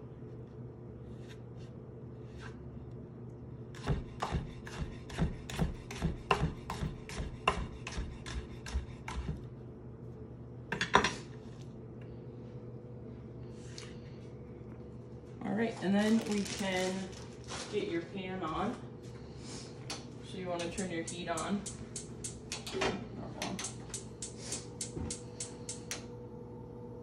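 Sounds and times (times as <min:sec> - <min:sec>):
steady low hum: 0:00.0 - 0:27.0
knife chopping on wooden board: 0:03.8 - 0:09.4.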